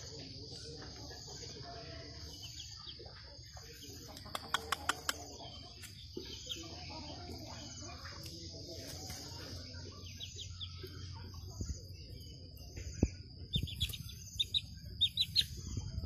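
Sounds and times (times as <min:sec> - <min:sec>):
high bird chirps: 0:10.0 - 0:16.0.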